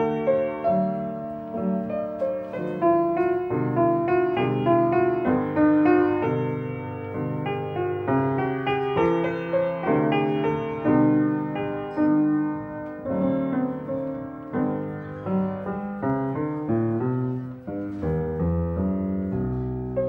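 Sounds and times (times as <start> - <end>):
solo piano melody: 0.0 - 20.0.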